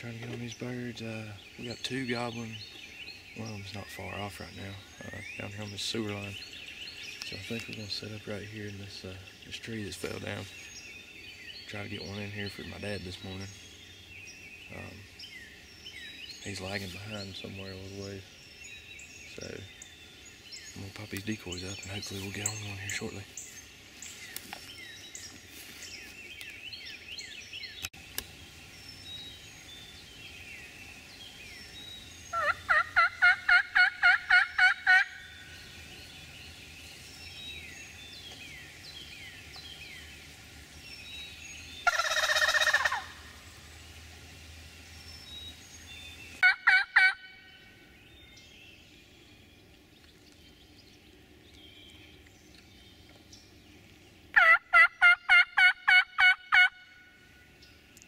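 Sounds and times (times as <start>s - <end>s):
songbirds chirping: 0.0s - 58.0s
turkey gobbling: 32.3s - 35.2s, 41.8s - 43.4s, 46.4s - 47.4s, 54.3s - 56.8s
turkey yelping: 32.3s - 35.2s, 41.8s - 43.2s, 46.4s - 47.4s, 54.4s - 56.8s.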